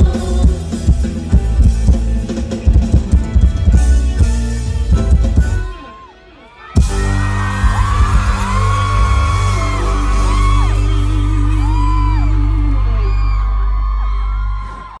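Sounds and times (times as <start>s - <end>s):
crowd whooping and screaming: 0.6s - 15.0s
drum hits: 6.8s - 9.2s
rock band sustained chord: 6.8s - 13.0s.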